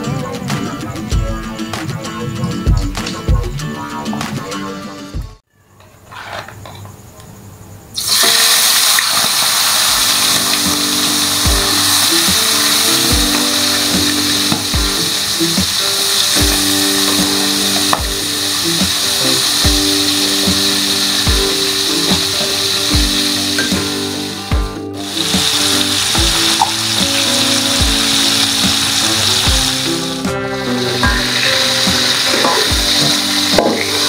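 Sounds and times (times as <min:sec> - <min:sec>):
background music with steady beat: 0:00.0 - 0:05.5, 0:09.9 - 0:34.0
shrimp sizzling in hot oil: 0:08.0 - 0:34.0.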